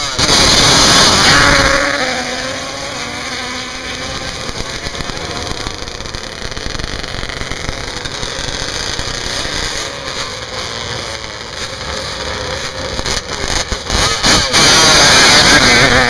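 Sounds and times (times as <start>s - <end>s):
quad bike engines running: 0.0s - 16.0s.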